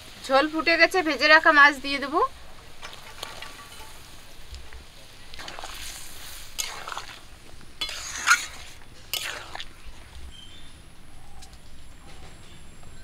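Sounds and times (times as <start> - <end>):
curry boiling and sizzling: 0.0 - 13.0
metal spatula scraping pan: 5.4 - 7.2, 7.8 - 10.0.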